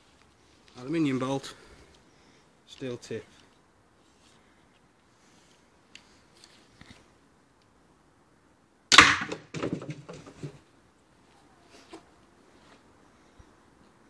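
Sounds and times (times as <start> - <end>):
crossbow firing crack: 8.9 - 9.6
knocks and rattles: 9.2 - 10.6.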